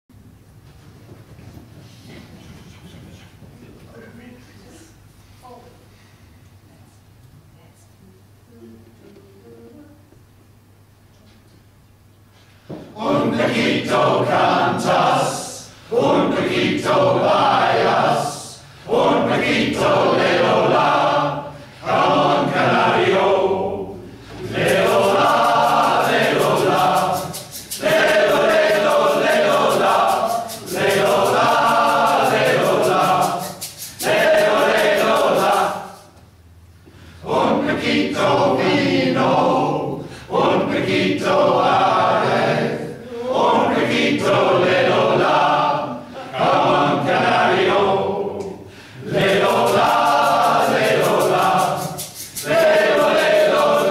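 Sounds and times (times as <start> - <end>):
men's choir singing: 12.9 - 36.2, 37.2 - 53.9.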